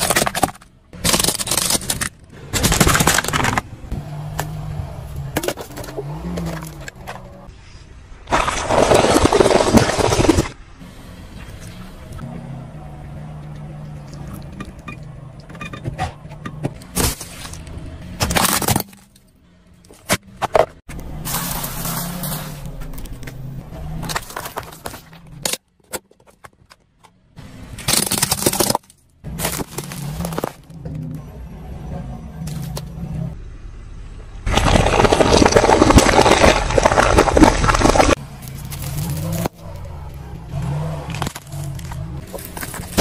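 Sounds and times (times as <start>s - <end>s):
tyre crushing objects: 0.0s - 3.7s, 8.3s - 10.6s, 27.8s - 30.8s, 34.5s - 39.7s, 41.0s - 43.0s.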